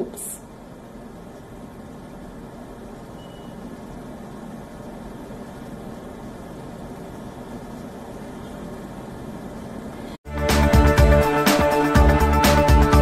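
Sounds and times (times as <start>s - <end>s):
low hum and hiss: 0.0s - 10.2s.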